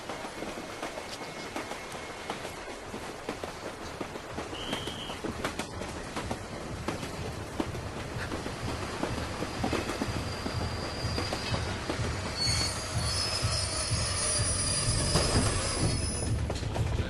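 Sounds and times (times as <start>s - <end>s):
train rumble with rattles: 0.0s - 17.0s
train wheels squealing: 4.5s - 5.2s, 8.5s - 16.5s.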